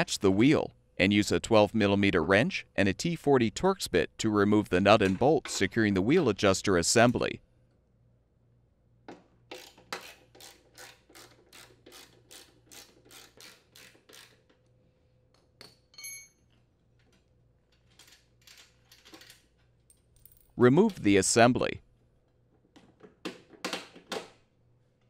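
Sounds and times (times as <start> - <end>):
short metallic ring: 15.9 - 16.4.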